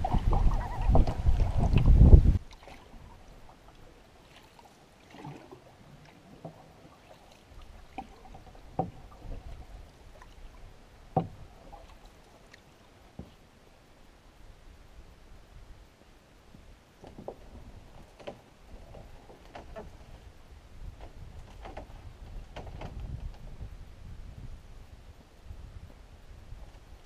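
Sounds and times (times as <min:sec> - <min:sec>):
wind buffeting microphone: 0:00.0 - 0:03.5, 0:20.0 - 0:27.0
paddle strokes: 0:00.0 - 0:14.1, 0:16.0 - 0:23.6
choppy water against canoe: 0:00.0 - 0:27.0
faint knocks against canoe: 0:07.6 - 0:09.6, 0:11.1 - 0:13.4.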